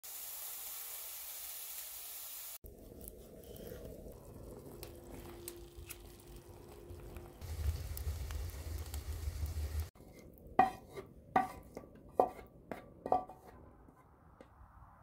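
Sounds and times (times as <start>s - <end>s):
food sizzling in pans: 0.0s - 2.6s, 4.2s - 10.0s.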